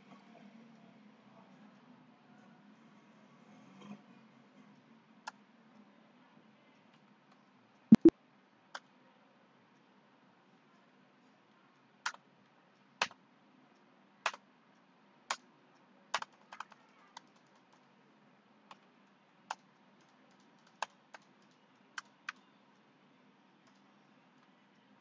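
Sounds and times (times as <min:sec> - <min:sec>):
computer keyboard keystrokes: 0:16.1 - 0:17.8, 0:19.5 - 0:22.5.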